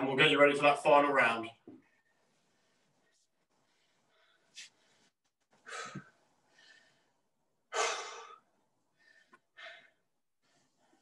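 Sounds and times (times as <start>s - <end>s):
man breathing hard: 3.6s - 11.0s.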